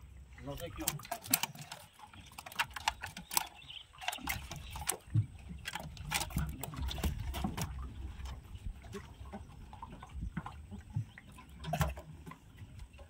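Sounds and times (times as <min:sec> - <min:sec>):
fish slapping on wet deck: 0:00.7 - 0:07.9.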